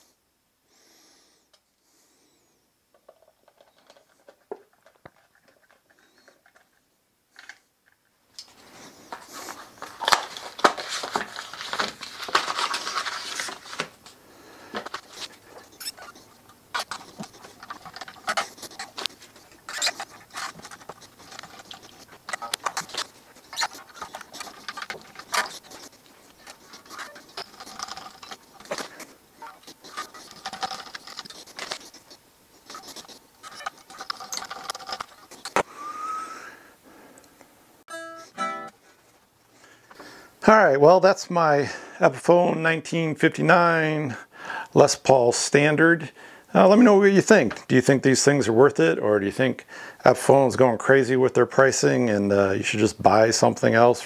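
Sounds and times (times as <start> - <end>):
guitar strings rattling and scraping: 14.8 - 32.0, 32.7 - 35.6.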